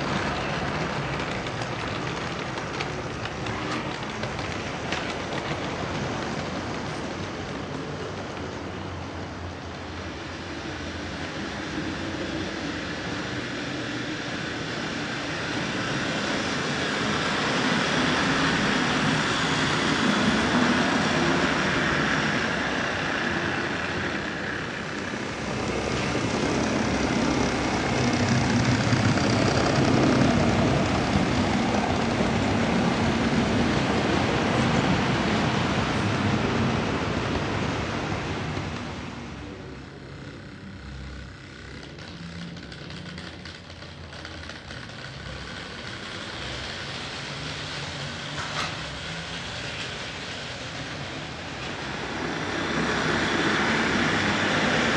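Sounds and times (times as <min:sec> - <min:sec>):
model train wheels rattling on track: 0:00.0 - 0:36.6, 0:38.7 - 0:54.9.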